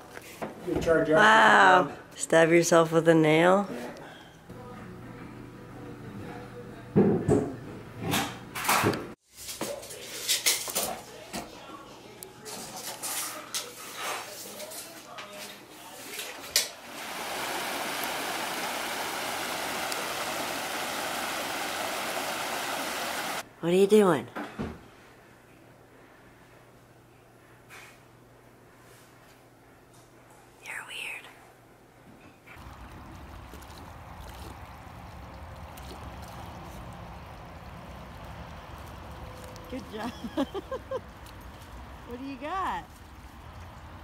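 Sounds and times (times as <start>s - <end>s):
stream tumbling over rocks: 16.8s - 23.4s, 32.6s - 42.0s
dog splashing in water: 32.6s - 42.1s.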